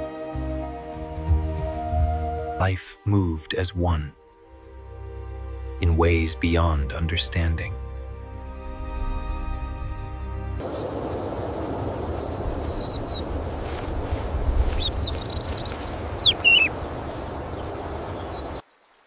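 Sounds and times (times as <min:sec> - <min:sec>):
steady rushing background: 0:10.6 - 0:18.6
songbird chirping: 0:10.6 - 0:19.0.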